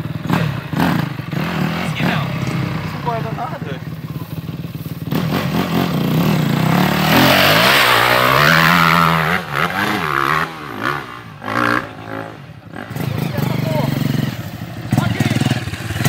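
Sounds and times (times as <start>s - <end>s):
dirt bike engine revving: 0.0s - 16.0s.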